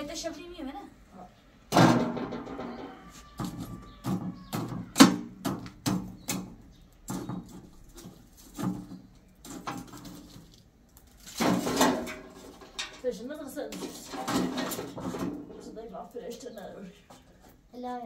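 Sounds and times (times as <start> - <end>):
objects knocking and clattering: 1.7 - 15.8
scraping or rustling noise: 7.1 - 13.1.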